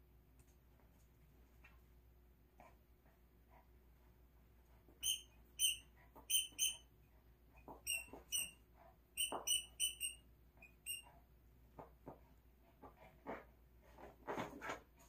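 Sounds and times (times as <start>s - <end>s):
squeaky dog toy squeaking: 5.0s - 6.9s, 7.6s - 8.6s, 9.2s - 11.1s.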